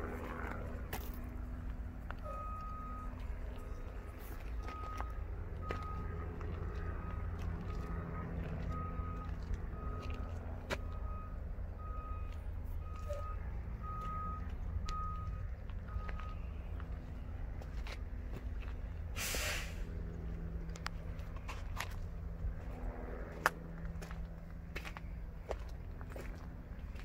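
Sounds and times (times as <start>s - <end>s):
engine rumbling: 0.0s - 27.0s
reversing alarm beeps: 2.2s - 3.2s, 4.5s - 16.7s.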